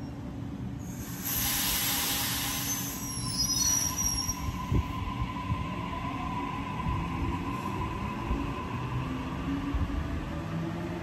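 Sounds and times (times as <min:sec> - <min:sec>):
train rumbling past: 0:00.2 - 0:11.0
wheel squeal: 0:02.6 - 0:04.5.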